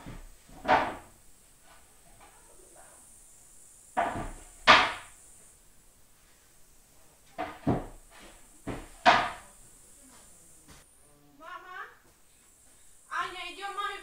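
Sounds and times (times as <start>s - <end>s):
sharp knocks or bangs: 4.0s - 5.1s.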